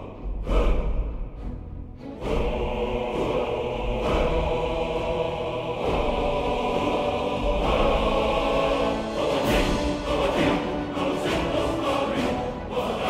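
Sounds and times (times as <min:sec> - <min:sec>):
choir-like voices: 0:00.0 - 0:13.0.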